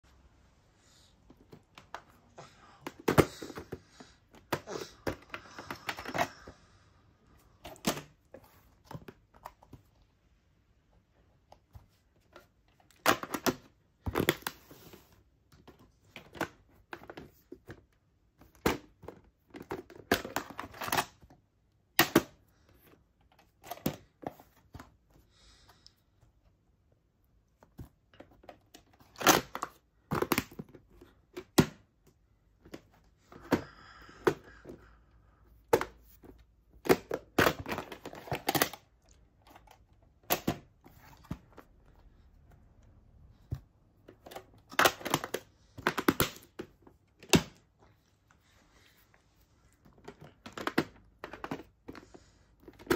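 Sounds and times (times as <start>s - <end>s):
plastic cases clacking and rattling: 1.3s - 6.5s, 7.6s - 9.9s, 11.6s - 21.3s, 27.8s - 34.9s, 35.5s - 42.0s, 43.4s - 47.8s, 49.8s - 52.9s.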